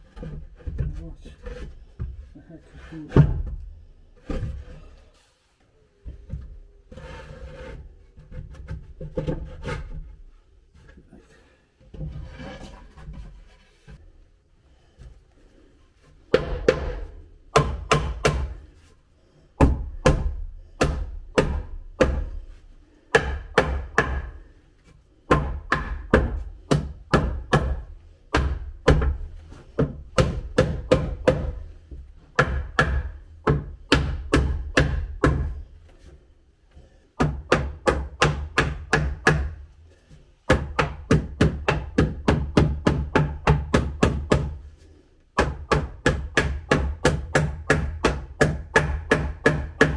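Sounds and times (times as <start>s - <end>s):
hammer striking nails into wood: 16.3s - 18.6s, 19.6s - 22.4s, 23.1s - 24.4s, 25.3s - 29.2s, 29.8s - 31.6s, 32.3s - 35.6s, 37.2s - 39.6s, 40.5s - 44.6s, 45.4s - 49.9s.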